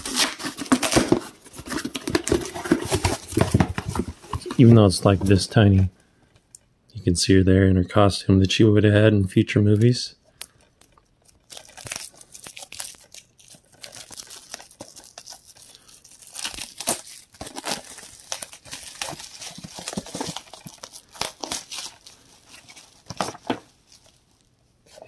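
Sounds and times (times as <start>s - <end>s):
plastic shrink wrap crinkling: 0.0s - 5.4s, 10.3s - 24.6s.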